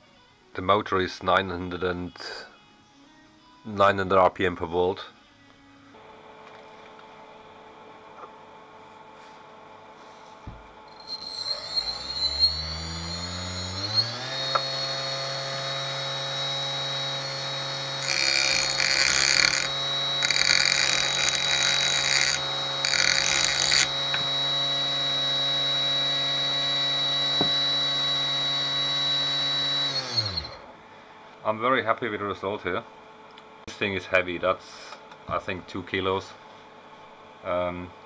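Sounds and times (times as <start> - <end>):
grinder motor whine: 5.9 - 31.4
tool grinding on stone: 10.9 - 24.5, 27.3 - 27.8.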